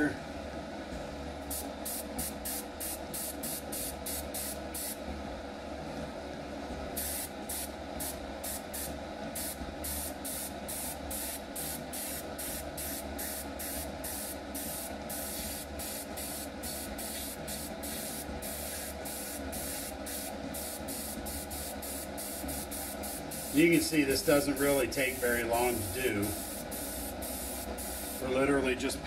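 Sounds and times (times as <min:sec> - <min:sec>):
steady low hum: 0:00.0 - 0:29.0
airbrush spraying hissing bursts: 0:01.5 - 0:05.0, 0:07.0 - 0:28.4.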